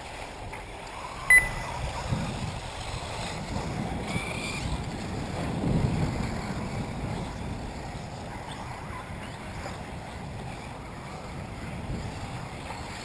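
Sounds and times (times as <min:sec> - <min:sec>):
wind buffeting microphone: 0:00.0 - 0:13.0
faint high whine: 0:01.3 - 0:02.0.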